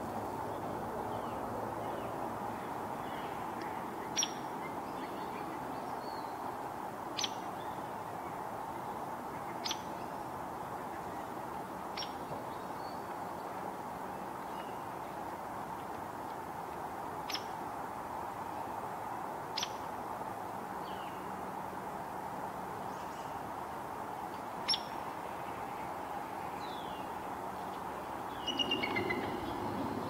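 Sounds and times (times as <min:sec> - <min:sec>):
woodpecker call notes: 0:03.6 - 0:04.7, 0:28.4 - 0:30.0
faint bird chirps: 0:28.4 - 0:30.0.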